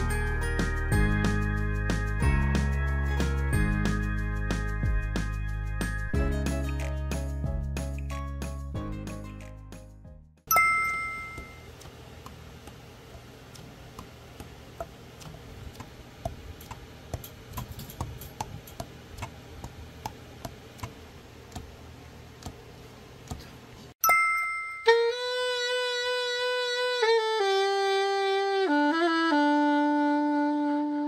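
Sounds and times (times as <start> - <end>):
two-tone ding: 10.5 - 11.7, 24.0 - 25.2.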